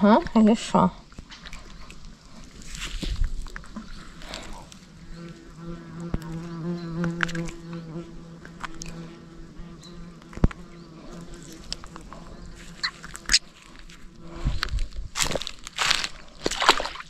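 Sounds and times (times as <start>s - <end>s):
flying insect buzzing: 3.9s - 15.1s.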